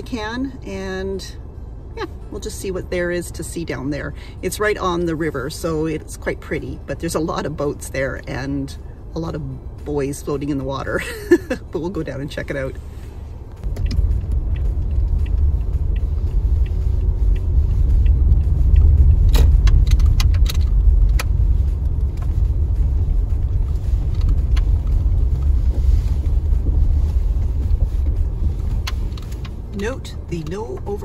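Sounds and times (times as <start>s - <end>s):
tyres and engine rumble: 0.0s - 31.0s
gravel clicking under tyres: 13.6s - 31.0s.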